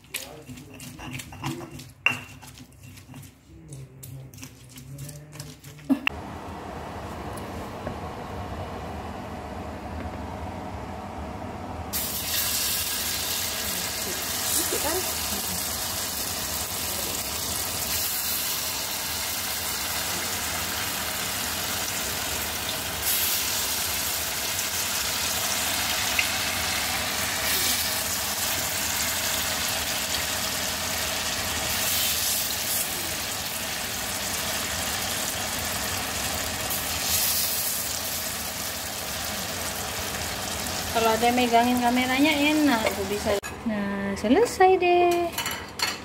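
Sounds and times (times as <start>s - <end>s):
batter sizzling in hot oil: 11.9s - 43.4s.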